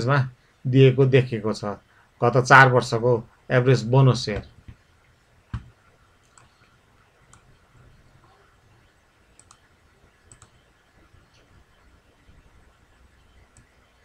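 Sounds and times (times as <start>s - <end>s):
computer mouse clicks: 5.5s - 7.6s, 9.3s - 10.7s, 13.5s - 13.8s.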